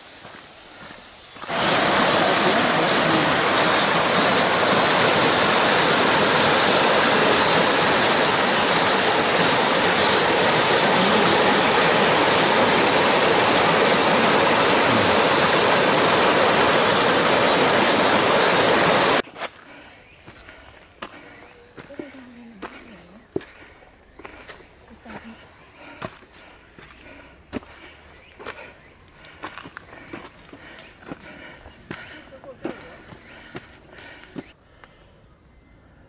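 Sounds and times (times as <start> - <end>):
stream rushing over boulders: 1.4 - 19.2.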